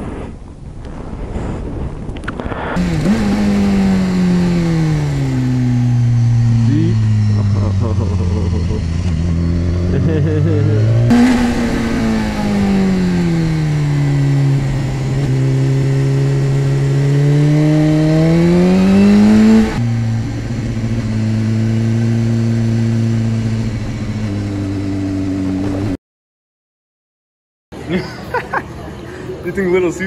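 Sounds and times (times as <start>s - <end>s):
motorcycle engine revving: 2.7s - 26.0s.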